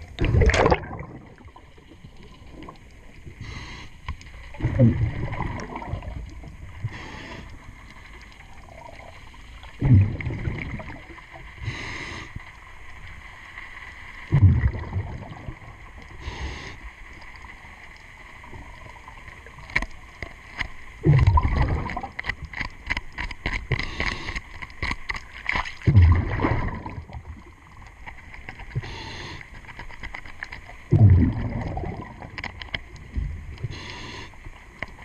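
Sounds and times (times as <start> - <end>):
exhaled bubbles rumbling: 0.0 - 3.4, 4.3 - 11.8, 14.2 - 16.3, 21.0 - 22.6, 25.8 - 28.9, 30.7 - 33.9
regulator inhalation hiss: 3.4 - 4.0, 6.8 - 7.7, 11.6 - 12.5, 16.2 - 17.0, 28.8 - 29.5, 33.6 - 34.5.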